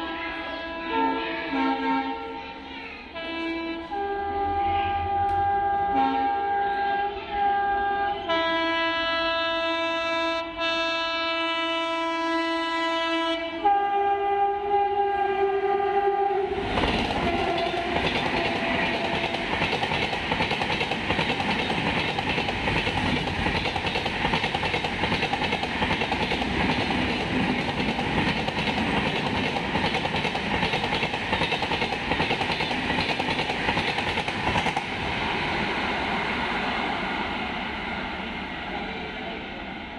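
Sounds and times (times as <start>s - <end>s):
train horn chord: 0.0s - 16.5s, 17.1s - 19.6s
train wheels rushing on rail: 16.4s - 39.9s.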